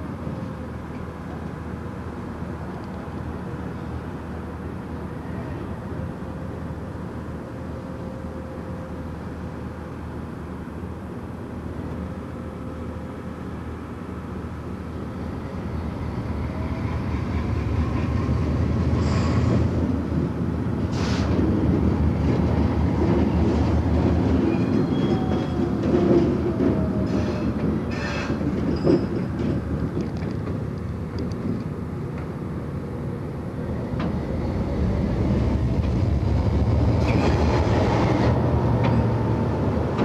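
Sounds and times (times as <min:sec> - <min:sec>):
diesel locomotive rumbling past: 0:00.0 - 0:40.0
faint wheel squeal: 0:24.5 - 0:25.7.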